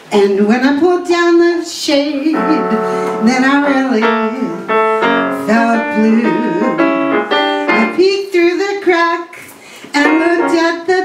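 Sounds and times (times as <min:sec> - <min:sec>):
woman singing into microphone: 0:00.0 - 0:04.7, 0:05.3 - 0:06.9, 0:07.7 - 0:11.0
piano chords: 0:02.2 - 0:08.6, 0:10.0 - 0:11.0.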